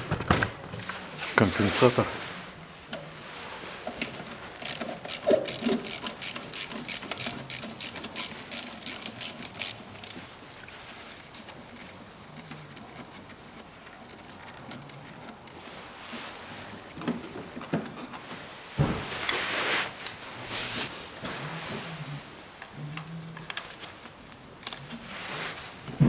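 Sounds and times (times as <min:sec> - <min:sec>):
ratchet wrench clicking: 0:04.6 - 0:10.2.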